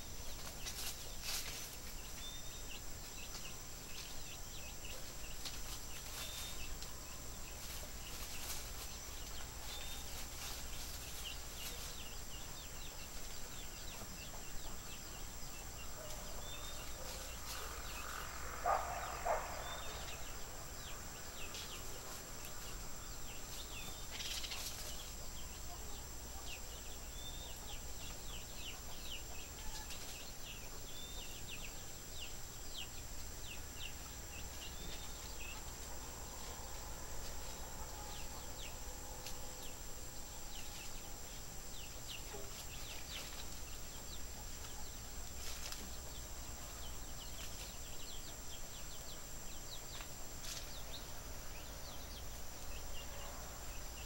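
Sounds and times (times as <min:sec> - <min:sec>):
small birds chirping: 0:00.0 - 0:54.0
animal call: 0:16.0 - 0:20.3.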